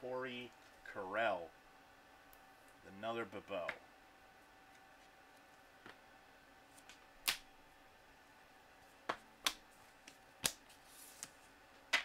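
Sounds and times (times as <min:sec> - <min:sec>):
card sliding on card: 0:10.7 - 0:11.4.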